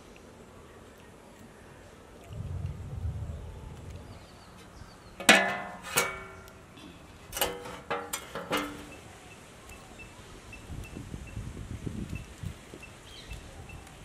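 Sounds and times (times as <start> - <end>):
metal pan knocking on stones: 5.2 - 6.5, 7.4 - 8.9.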